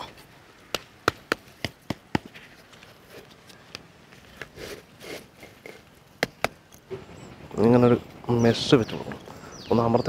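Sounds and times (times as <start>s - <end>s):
block scraping and shuffling: 1.4s - 6.6s.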